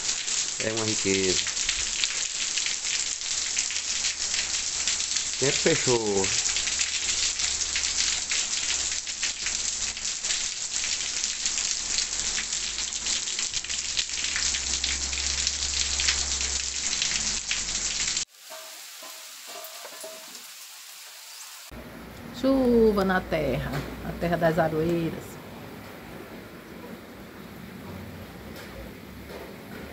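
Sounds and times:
heavy rain on concrete: 0:00.0 - 0:21.7.

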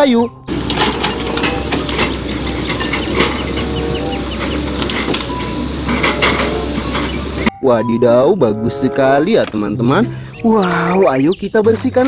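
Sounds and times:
diesel engines humming: 0:00.0 - 0:07.5
logs knocking and clattering: 0:00.5 - 0:07.5.

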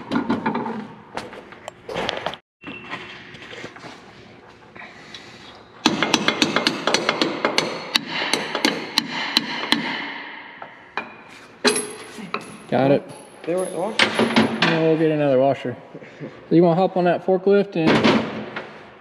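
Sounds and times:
hammer striking metal bolt: 0:05.8 - 0:12.0.

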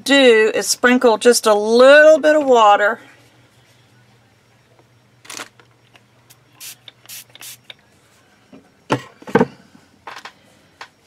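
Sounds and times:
spray bottle spritzes: 0:06.6 - 0:07.7.

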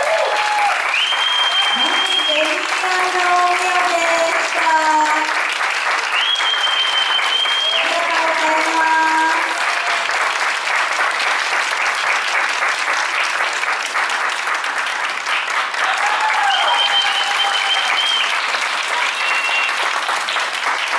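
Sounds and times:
high held whoop: 0:00.0 - 0:02.3, 0:15.8 - 0:18.4
audience clapping and cheering: 0:00.0 - 0:20.9.

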